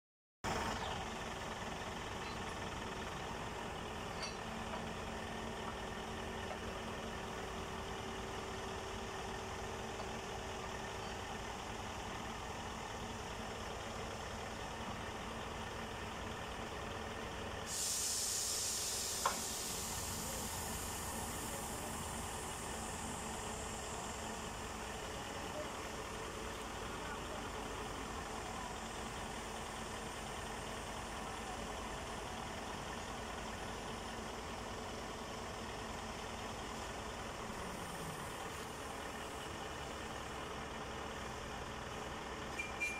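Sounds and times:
diesel engine idling: 0.4 - 42.9
air hissing: 17.6 - 25.2.

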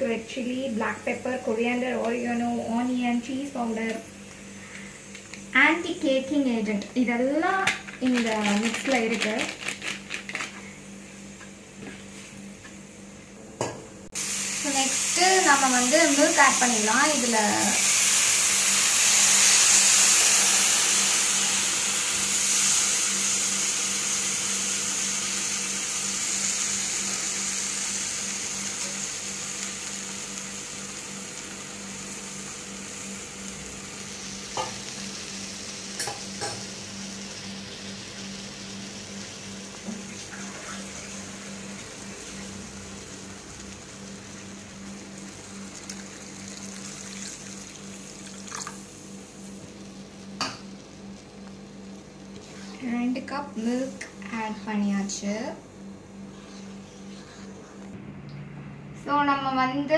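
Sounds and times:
milk sizzling in frying pan: 14.2 - 54.3
low hum: 49.2 - 59.9.

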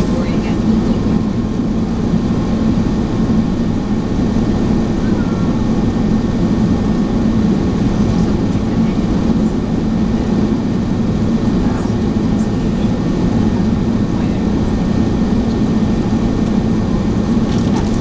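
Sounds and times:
jet cabin drone: 0.0 - 18.0.

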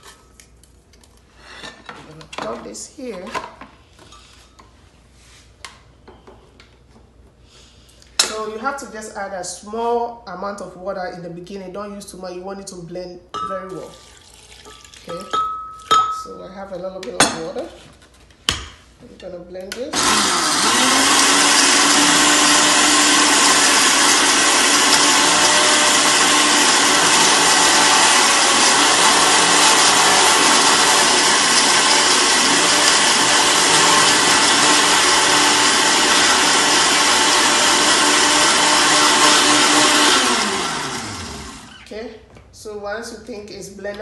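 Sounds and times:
blender running: 19.9 - 41.9.

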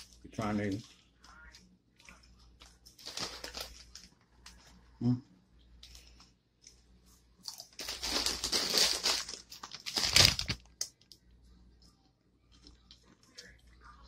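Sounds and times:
plastic bag crinkling: 2.3 - 4.8, 7.5 - 11.1.

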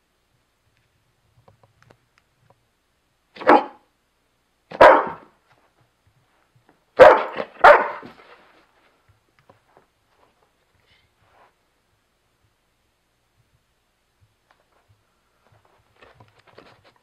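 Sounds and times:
dog barking: 3.4 - 3.9, 4.7 - 5.3, 7.0 - 8.2.

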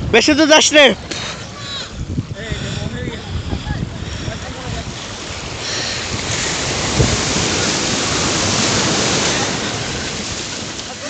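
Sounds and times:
wind buffeting microphone: 0.0 - 10.9
small waves breaking: 0.0 - 11.0.

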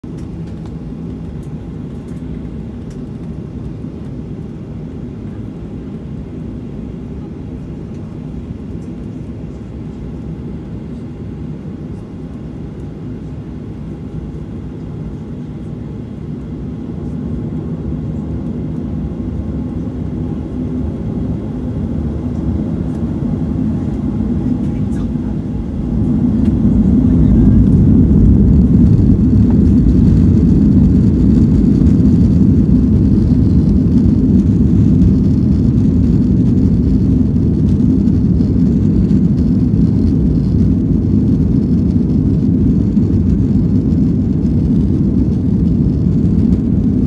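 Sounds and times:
jet engines rumbling in cabin: 0.0 - 47.0.

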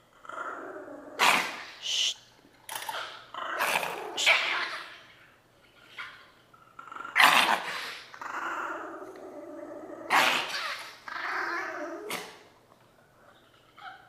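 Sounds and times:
dog growling and snarling: 0.1 - 1.8, 2.7 - 5.0, 6.7 - 12.5.

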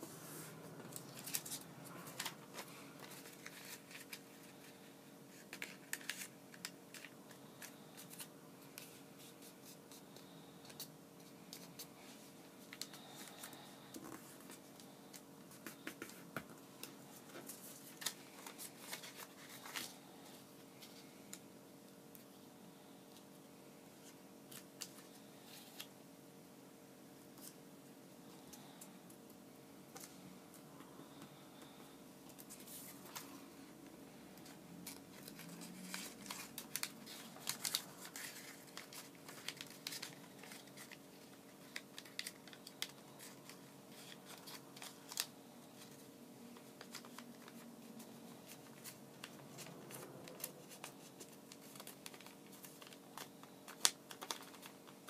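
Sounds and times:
paper crinkling: 0.9 - 12.0, 12.7 - 21.5, 34.4 - 55.0.

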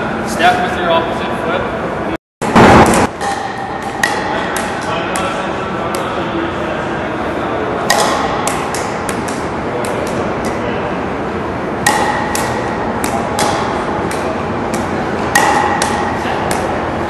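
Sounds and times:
murmur of voices: 4.2 - 11.6
balls bouncing on hard floor: 11.8 - 16.8
paddles hitting plastic balls: 11.8 - 16.8.

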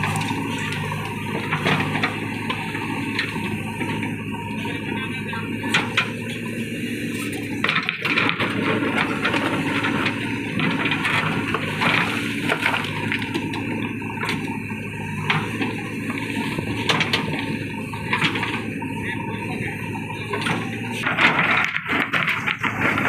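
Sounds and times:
diesel engine under load: 0.0 - 23.0.

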